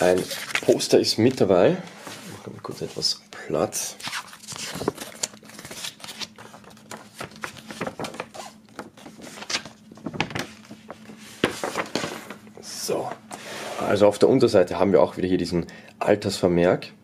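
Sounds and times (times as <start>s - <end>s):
paper rustling and crackling: 0.0s - 1.5s, 3.8s - 12.5s.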